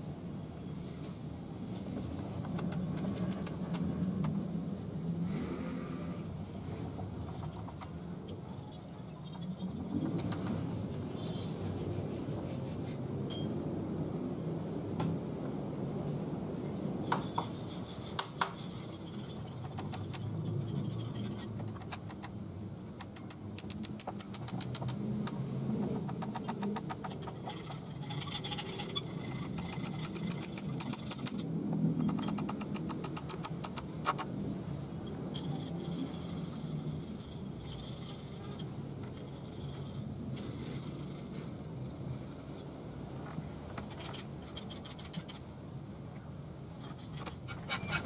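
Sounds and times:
low traffic hum: 0.0 - 48.0
screws clicking into wood: 23.0 - 25.0, 32.1 - 34.2.

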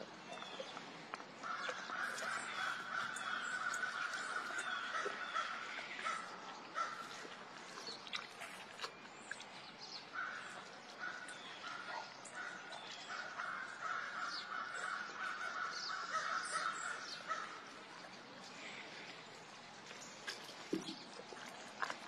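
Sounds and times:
tiger gnawing a bone: 0.1 - 11.2, 19.8 - 22.0.

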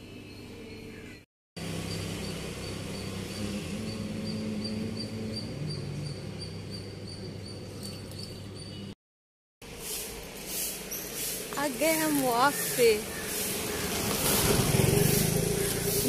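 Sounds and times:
small bird chirping: 1.8 - 9.0.

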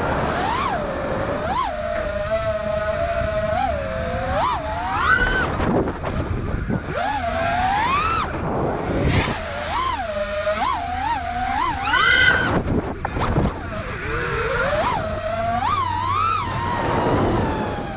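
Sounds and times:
drone motors whining: 0.0 - 17.9
wind noise rushing: 8.3 - 9.4, 12.4 - 14.8, 16.4 - 17.9.

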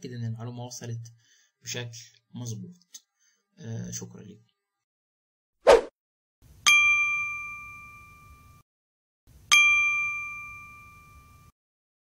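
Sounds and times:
bell-like dings: 6.7 - 8.6, 9.5 - 11.5.

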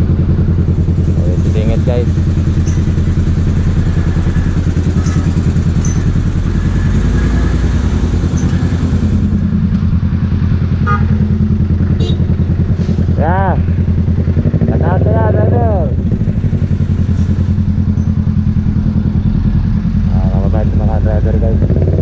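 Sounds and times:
motorcycle engine rumbling: 0.0 - 22.0.

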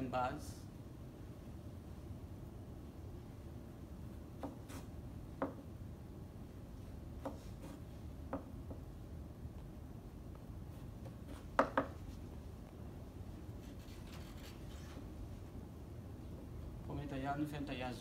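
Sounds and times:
knife knocking on plastic board: 11.6 - 12.0.

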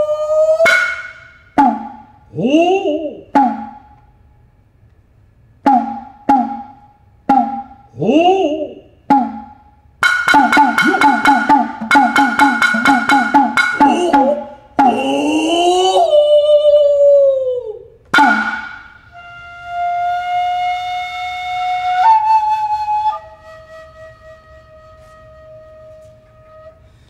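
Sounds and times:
bamboo flute long notes: 0.0 - 4.0, 5.6 - 27.0
fast drum strokes: 9.1 - 15.1
sharp drum stroke: 9.1 - 15.1, 18.2 - 19.1.

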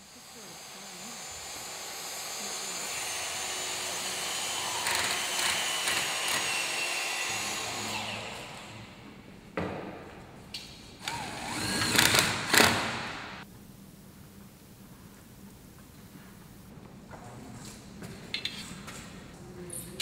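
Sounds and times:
chop saw cutting metal: 0.0 - 8.5.

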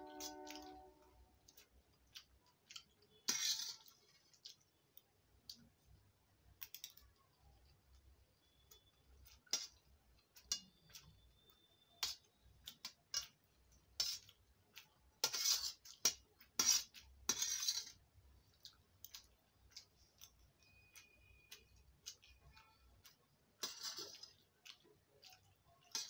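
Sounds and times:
spoons clinking on steel plate: 0.0 - 0.8, 2.7 - 4.0.

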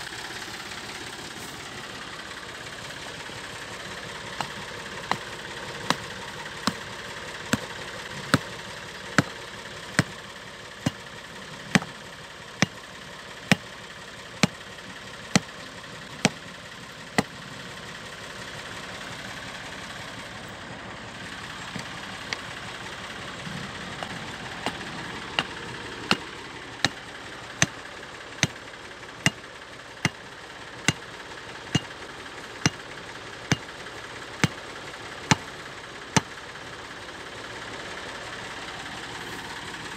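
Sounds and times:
steady mechanical hum: 0.0 - 39.9
stone hammering wooden stake: 4.3 - 8.6, 9.2 - 10.2, 10.8 - 11.1, 11.7 - 12.8, 13.4 - 13.7, 14.4 - 14.7, 15.3 - 15.6, 16.2 - 16.4, 23.9 - 27.0, 29.2 - 29.4, 30.0 - 30.2, 30.8 - 31.0, 31.7 - 32.0, 32.6 - 32.8, 33.5 - 33.7, 34.4 - 34.6, 35.3 - 35.5.

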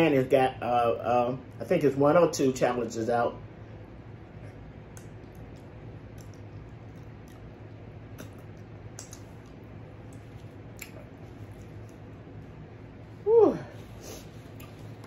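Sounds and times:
low steady hum: 0.0 - 15.0
wet mouth clicks and smacks: 4.8 - 12.2, 14.5 - 15.0.

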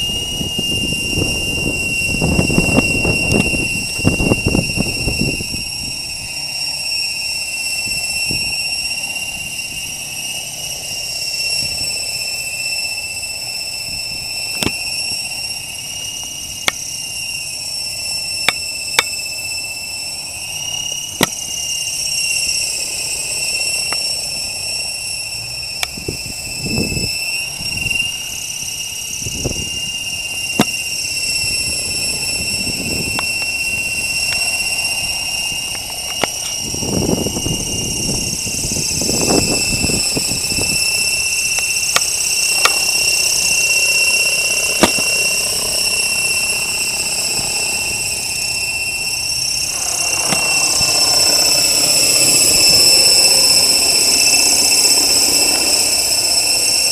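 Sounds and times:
low rushing gusts: 0.0 - 6.6, 22.1 - 56.9
rc helicopter motor whine: 0.0 - 56.9.

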